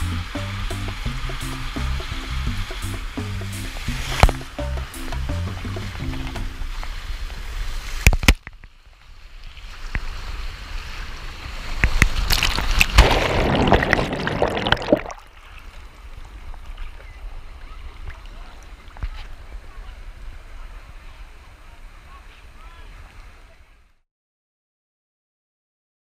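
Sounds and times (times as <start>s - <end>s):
water rushing down a slide: 9.4s - 21.3s
splashdown into pool: 11.7s - 15.4s
water sloshing: 11.7s - 17.2s.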